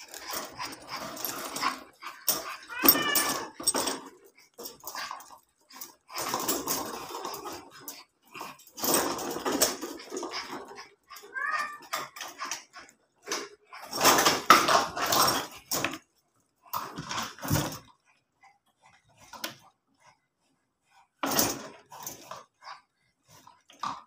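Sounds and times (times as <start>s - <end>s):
wire cage and litter tray rattling: 0.0s - 16.1s, 16.7s - 17.9s, 21.2s - 22.5s.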